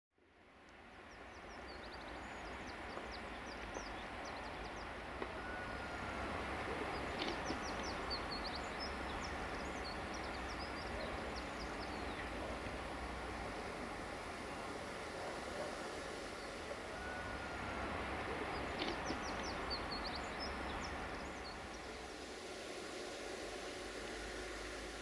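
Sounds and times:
steady rushing background noise: 0.4 - 25.0
small birds chirping: 1.0 - 13.0, 18.3 - 22.0.

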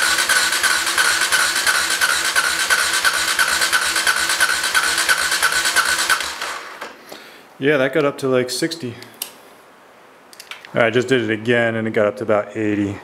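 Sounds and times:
engine cranking on electric starter: 0.0 - 7.0.

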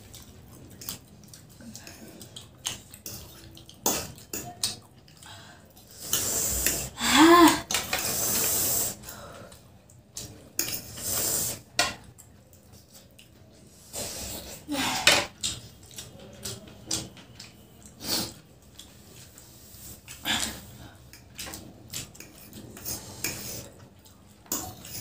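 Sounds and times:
slurping noodles: 5.8 - 9.1, 10.6 - 11.7, 13.7 - 14.7.

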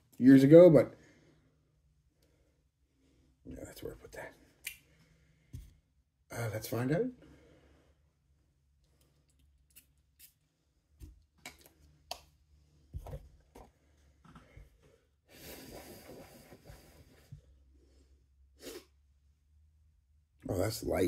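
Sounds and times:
person sniffing: 15.3 - 17.3, 18.5 - 19.0.

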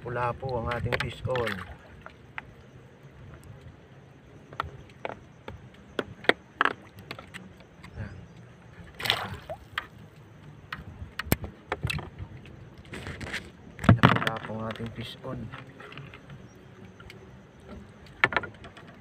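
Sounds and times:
faint water wash: 0.0 - 3.7
fishing tackle clicks and knocks: 0.5 - 2.6, 4.4 - 8.5, 9.6 - 19.0.

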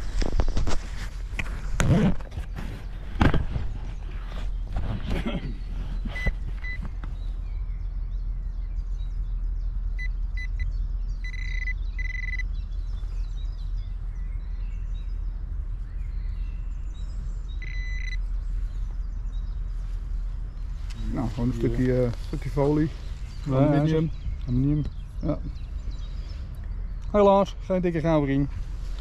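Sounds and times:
low rumble: 2.8 - 29.0
faint bird chirps: 5.4 - 27.8
metal detector beeping: 6.1 - 6.8, 10.0 - 12.5, 17.6 - 18.2.

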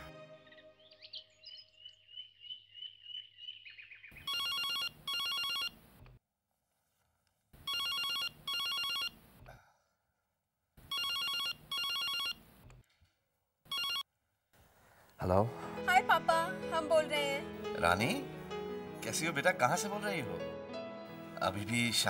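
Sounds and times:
birds chirping: 0.3 - 4.4
telephone electronic double ring: 4.3 - 5.8, 10.9 - 12.4, 13.7 - 14.0.

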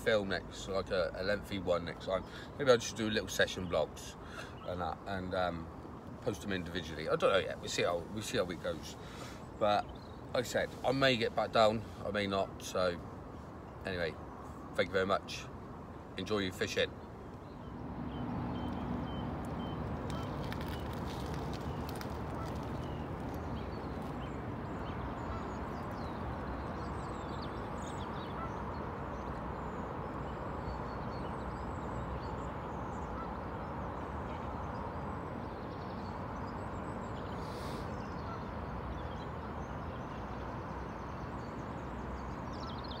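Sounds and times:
ducks and waterbirds calling: 17.5 - 43.0.

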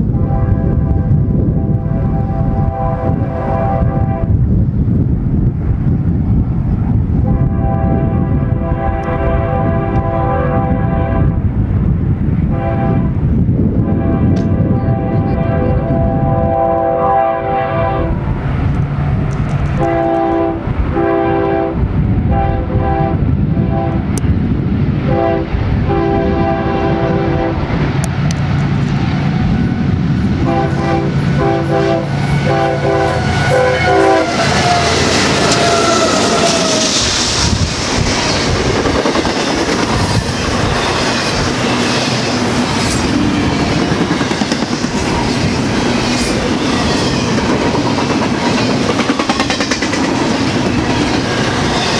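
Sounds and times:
train cars rumbling over rails: 0.0 - 51.9
locomotive horn short blasts: 19.8 - 21.8, 30.5 - 36.7.

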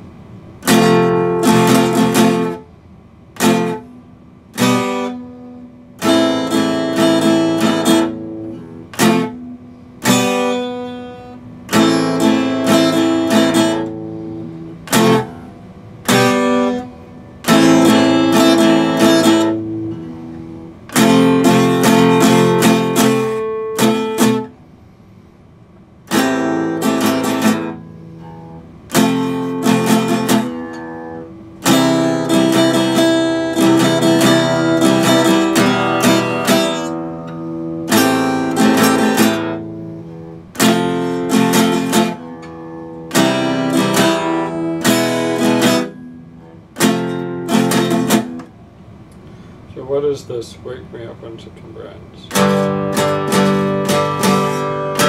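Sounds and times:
acoustic guitar strumming chords: 0.0 - 55.0.

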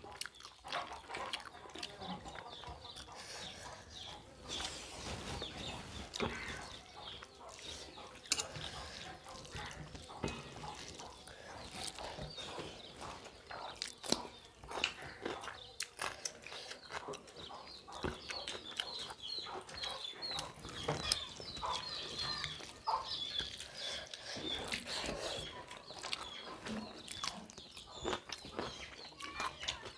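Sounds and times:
wet chewing and lip-smacking: 0.0 - 4.8, 6.0 - 29.9
fingers mixing rice on steel plates: 0.1 - 29.9.

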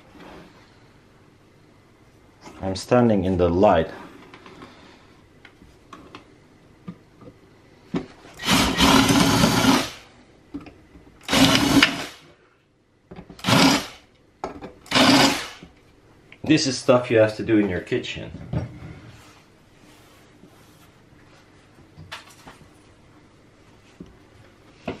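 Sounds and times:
cordless drill drilling metal: 8.4 - 10.0, 11.2 - 12.2, 13.4 - 14.0, 14.9 - 15.6.

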